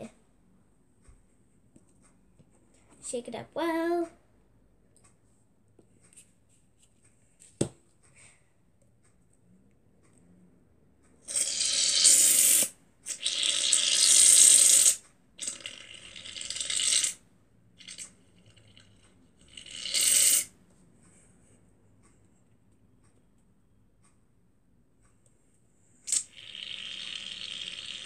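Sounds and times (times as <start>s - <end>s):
aerosol can hissing: 11.3s - 12.7s, 13.7s - 15.0s, 19.8s - 20.5s.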